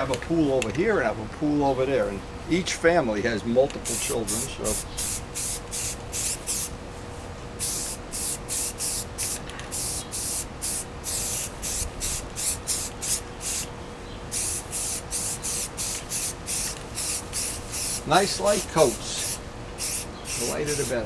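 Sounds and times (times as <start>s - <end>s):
aerosol can spraying in bursts: 3.8s - 6.7s, 7.6s - 13.7s, 14.3s - 21.0s.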